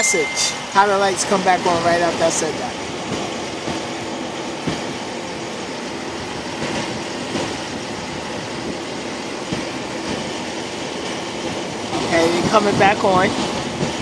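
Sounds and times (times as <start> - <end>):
rain: 9.9 - 14.0.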